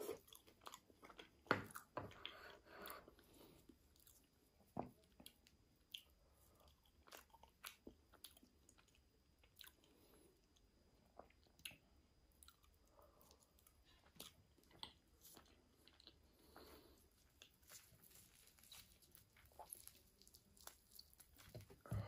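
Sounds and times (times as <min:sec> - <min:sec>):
chewing and biting food: 0:00.0 - 0:03.3, 0:05.0 - 0:22.0
crisp food crunches: 0:17.2 - 0:21.8.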